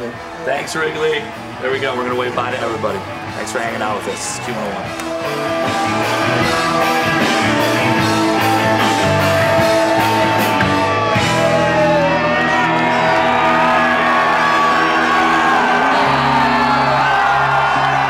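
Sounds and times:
bass guitar: 0.0s - 18.0s
electric guitar: 4.4s - 18.0s.

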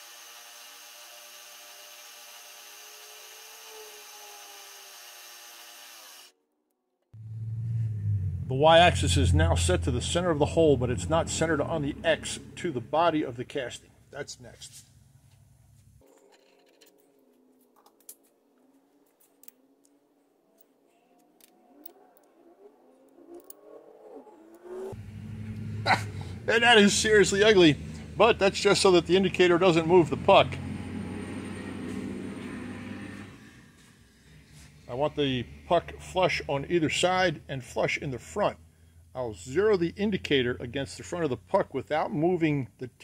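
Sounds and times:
faint wavering gliding tones: 20.4s - 25.0s.

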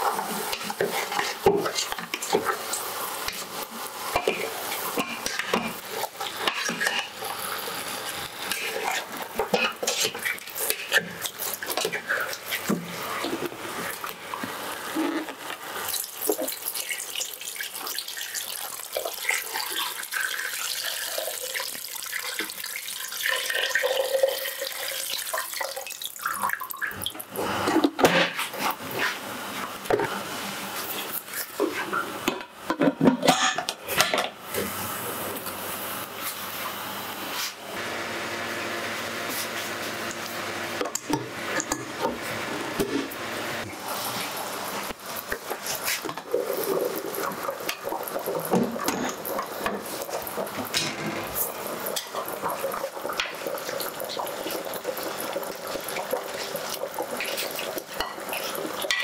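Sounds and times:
metal utensil and lid clatter: 32.3s - 34.3s.

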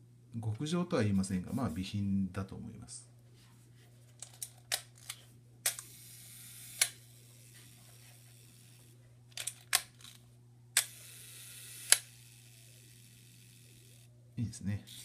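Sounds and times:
faint shutter whirr: 4.3s - 14.1s, 14.8s - 15.0s
camera shutter clicks: 10.8s - 12.2s.

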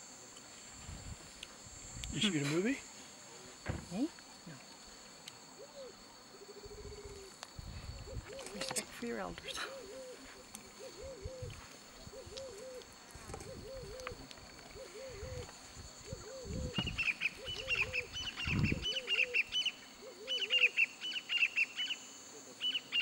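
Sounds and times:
high chattering bird calls: 16.2s - 22.0s.

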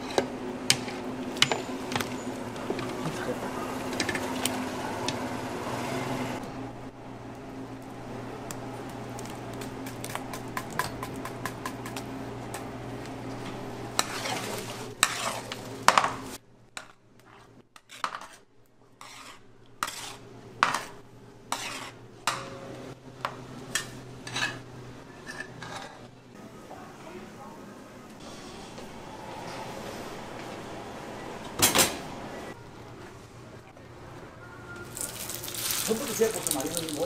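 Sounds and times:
metal utensils scraping pots: 0.0s - 4.6s, 13.9s - 16.3s, 23.7s - 26.1s.

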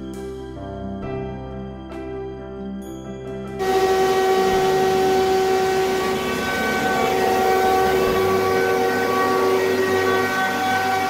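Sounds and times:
soft background music: 0.0s - 11.0s
held tones: 3.6s - 11.0s
machine line running: 3.6s - 11.0s.

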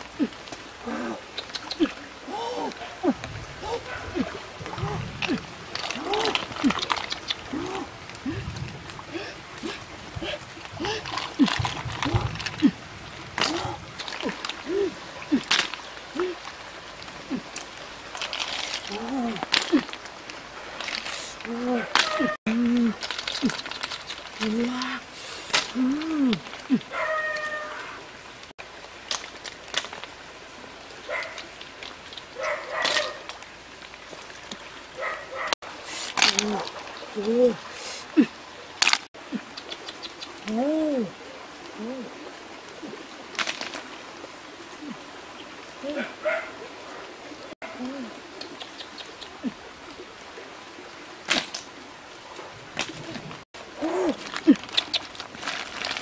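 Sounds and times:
bird cooing: 13.4s - 15.5s, 21.4s - 23.0s, 39.4s - 43.0s, 47.7s - 49.6s
short vocal calls: 21.2s - 23.6s.

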